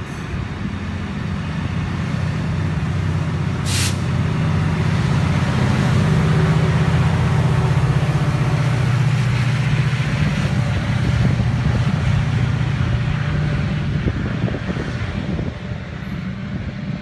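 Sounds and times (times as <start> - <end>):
diesel locomotive engine drone: 0.0 - 17.0
hiss: 3.6 - 4.2.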